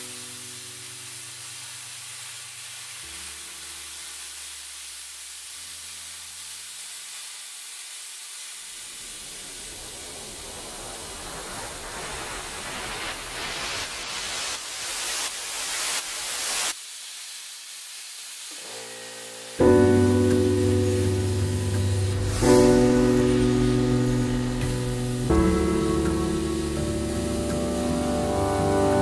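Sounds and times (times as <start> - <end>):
plasma cutter hissing: 0.0 - 29.0
soft sustained music notes: 18.6 - 29.0.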